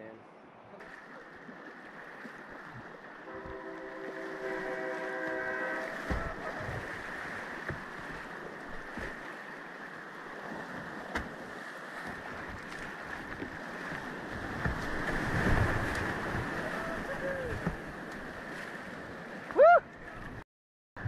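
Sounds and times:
whitewater rapids rushing: 3.2 - 18.6.

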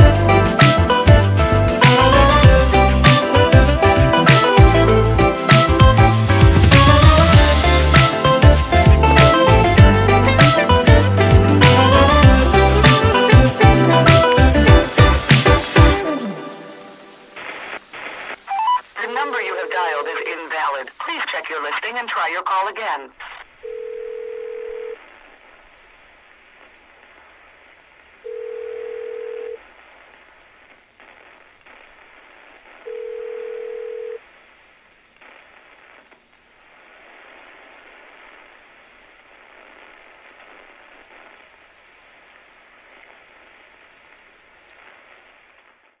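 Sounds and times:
rain falling: 0.0 - 46.0
telephone ringback tone: 23.6 - 25.0, 28.3 - 29.6, 32.9 - 34.2.

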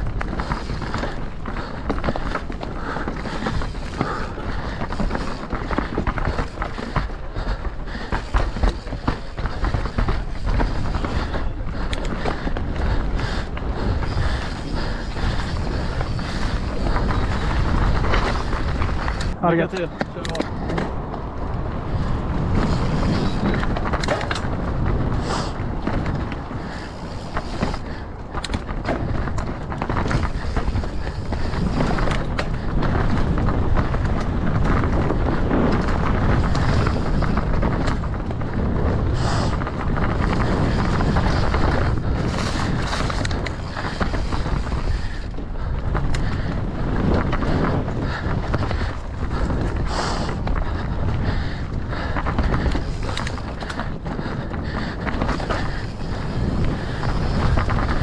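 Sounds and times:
bike knocks and rattles: 0.0 - 58.0
bike tyres rolling over dirt: 0.0 - 58.0
wind buffeting microphone: 0.0 - 58.0.

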